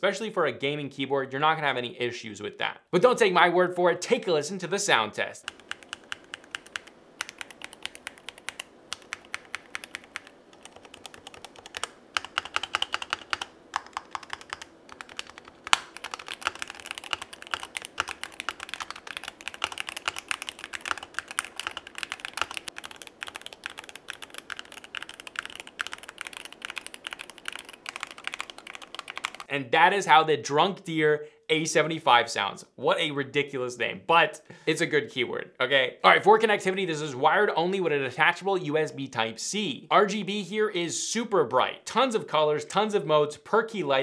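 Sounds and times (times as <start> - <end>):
keyboard keystrokes clacking: 5.4 - 29.5.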